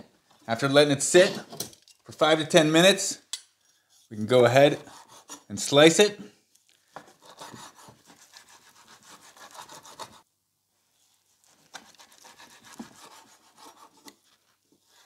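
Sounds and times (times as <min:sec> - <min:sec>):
knife sawing on cutting board: 0:04.8 - 0:05.5, 0:07.1 - 0:10.2, 0:11.4 - 0:15.0.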